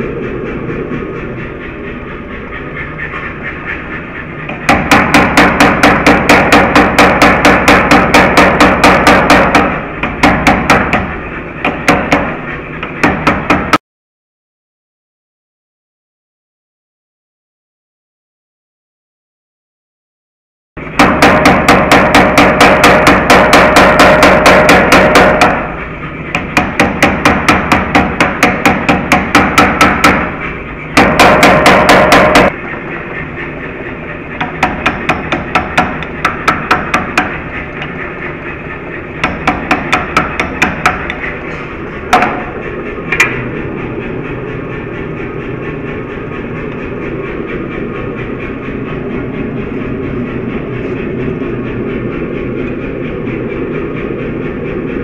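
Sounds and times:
gas forge roaring: 0.0s - 13.8s, 20.8s - 55.0s
hammer striking hot steel: 4.4s - 13.8s, 20.8s - 32.8s, 34.3s - 43.5s.

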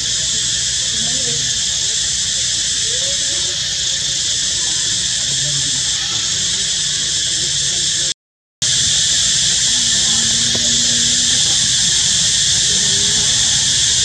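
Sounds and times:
insect chorus drone: 0.0s - 14.0s.

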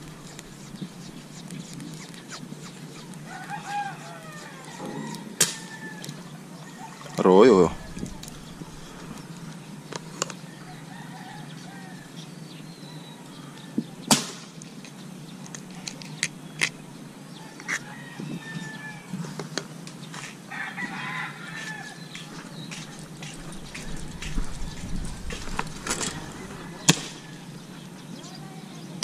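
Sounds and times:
steady low hum: 0.0s - 20.4s
faint fowl calls: 0.2s - 9.3s, 17.4s - 19.4s, 20.1s - 28.6s
rooster crowing: 3.2s - 8.9s, 10.5s - 12.2s, 17.4s - 19.2s, 20.5s - 27.8s.

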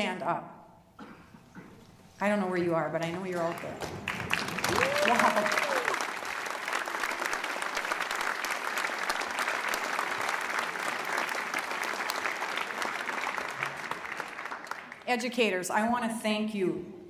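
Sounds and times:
large audience applauding: 3.4s - 15.1s.

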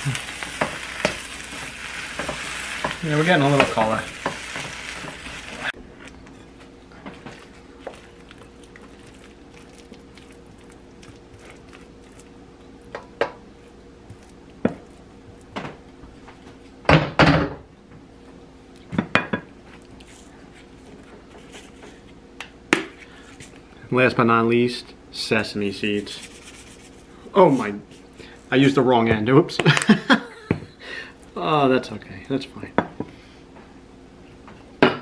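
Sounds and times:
stir-fry sizzling in wok: 0.0s - 5.8s
faint steady hum: 0.0s - 35.0s
spoon knocking and scraping wok: 0.4s - 5.4s.

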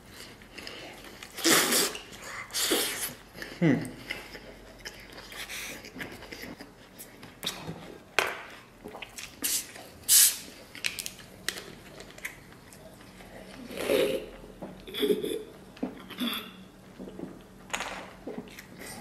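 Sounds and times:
bottle opening with carbonation hiss: 9.4s - 10.5s.

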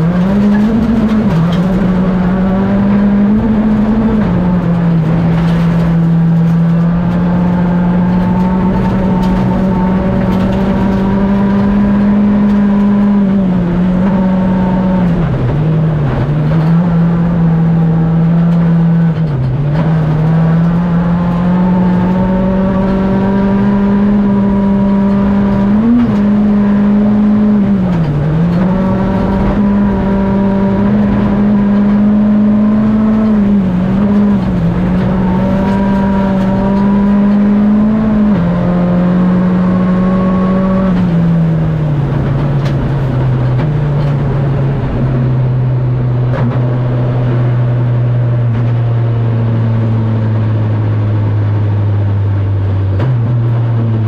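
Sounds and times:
rally car engine at high revs: 0.0s - 54.0s.

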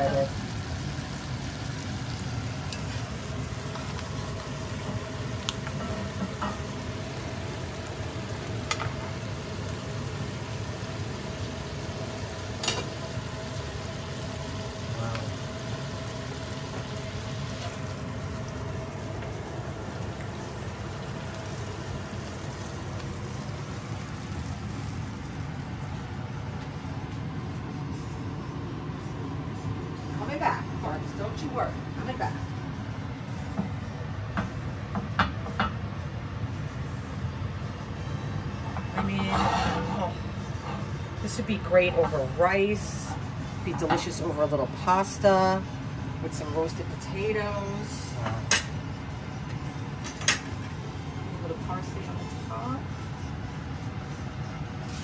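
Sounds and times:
sauce sizzling in a skillet: 0.0s - 26.4s.

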